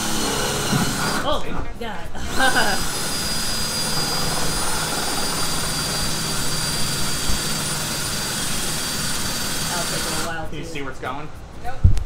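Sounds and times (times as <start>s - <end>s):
cordless drill grinding into metal: 0.0s - 1.5s, 2.2s - 10.3s
steady high whine: 0.0s - 12.0s.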